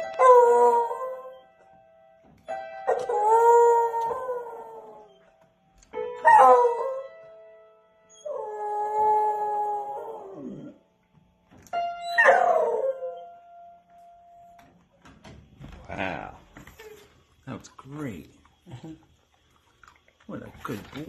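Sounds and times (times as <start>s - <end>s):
piano notes: 0.0s - 15.2s
dog howling: 8.2s - 10.8s, 12.0s - 13.3s.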